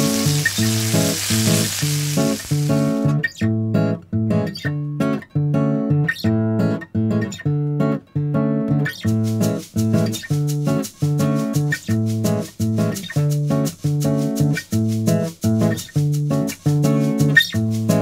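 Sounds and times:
chicken sizzling in a frying pan: 0:00.0 - 0:03.2
bossa nova acoustic guitar music: 0:00.0 - 0:18.0.

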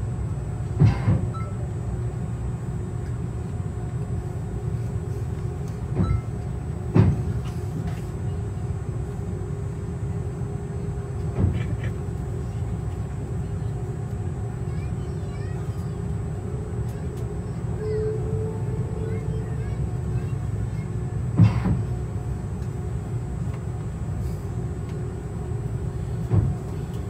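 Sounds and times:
airliner cabin rumble: 0:00.0 - 0:27.0.

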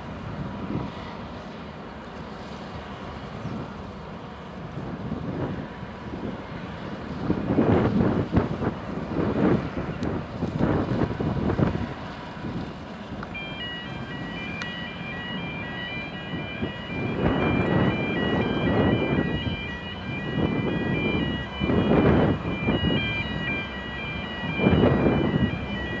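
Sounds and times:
wind buffeting microphone: 0:00.0 - 0:01.2, 0:04.6 - 0:26.0
faint high tones changing pitch: 0:13.4 - 0:21.7.

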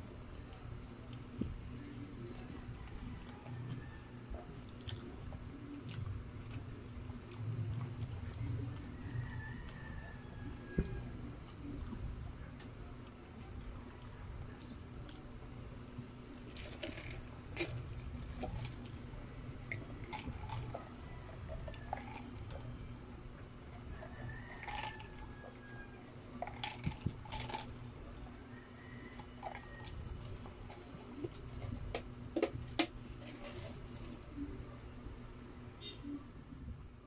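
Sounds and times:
steady low hum: 0:00.0 - 0:37.0
paper cup and wrappers crinkling: 0:16.3 - 0:19.0.

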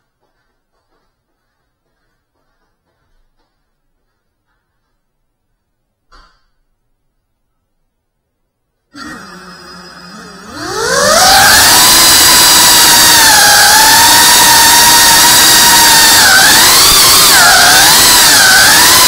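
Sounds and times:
quadcopter motors whining: 0:09.0 - 0:19.0.

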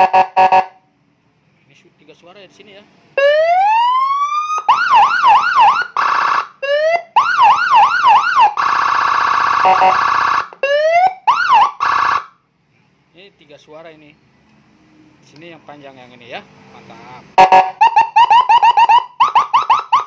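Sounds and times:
police siren wail and yelps: 0:03.2 - 0:12.4, 0:17.4 - 0:20.0
buzzing horn tone: 0:09.4 - 0:10.2.

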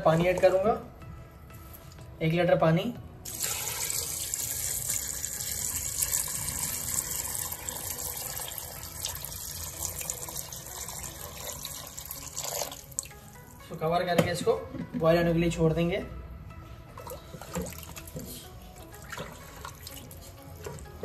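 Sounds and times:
water pouring into metal pot: 0:03.2 - 0:13.2.

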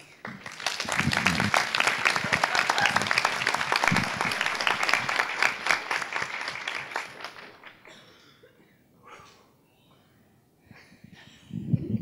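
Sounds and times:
audience applauding: 0:00.0 - 0:07.9.

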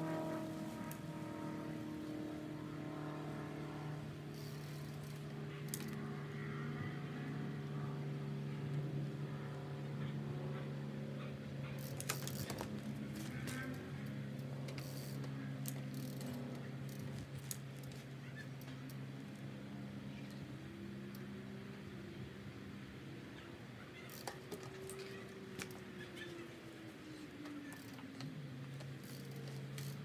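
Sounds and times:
low machine hum: 0:00.0 - 0:30.0
mountain bike clicks and knocks: 0:04.3 - 0:06.0, 0:11.7 - 0:19.4, 0:24.0 - 0:26.3, 0:27.4 - 0:30.0.

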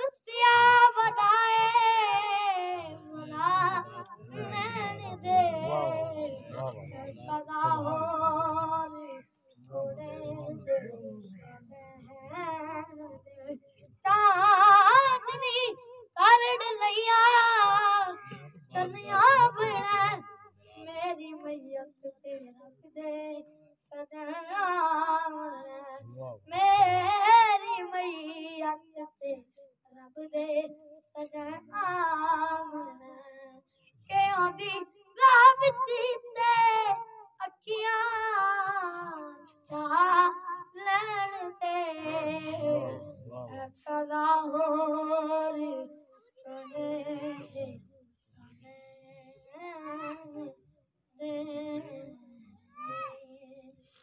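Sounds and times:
boy singing unaccompanied: 0:00.0 - 0:47.9, 0:48.5 - 0:50.6, 0:51.2 - 0:53.8.

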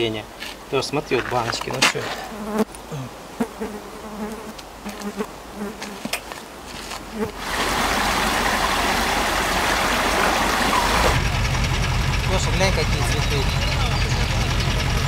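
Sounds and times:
flies buzzing: 0:02.0 - 0:11.2
rocky stream rushing: 0:06.3 - 0:11.2.

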